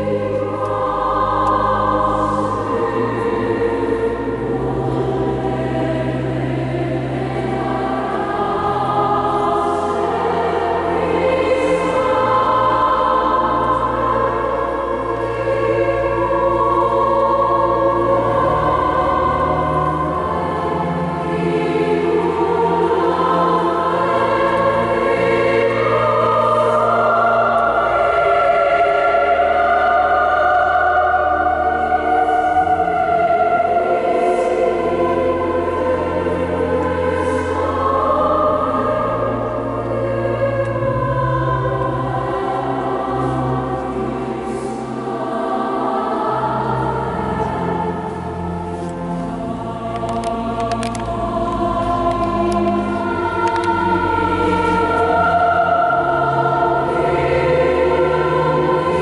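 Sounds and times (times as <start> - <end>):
choir singing slow chords: 0.0 - 59.0.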